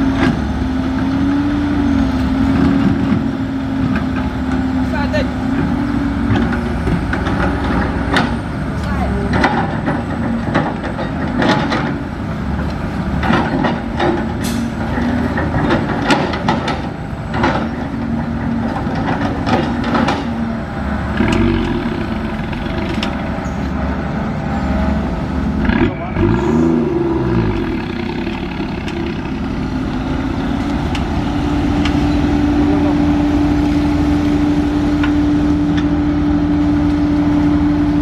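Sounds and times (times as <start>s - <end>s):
diesel engines running: 0.0s - 38.0s.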